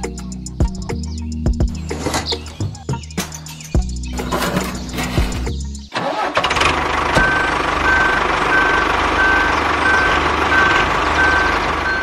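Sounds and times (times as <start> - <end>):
vehicle engine running: 3.8 - 12.0.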